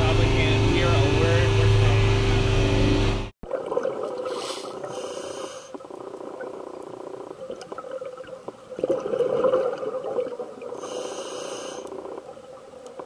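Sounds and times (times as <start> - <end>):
boat engine drone: 0.0 - 3.3
diver breathing through regulator: 4.2 - 5.8, 10.8 - 12.0.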